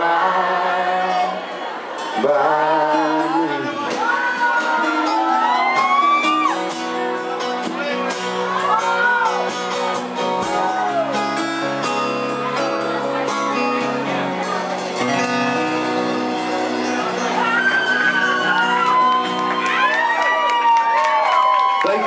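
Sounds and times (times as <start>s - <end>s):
finger-picked acoustic guitars: 0.0s - 19.8s
audience whooping: 4.0s - 6.7s, 17.3s - 22.0s.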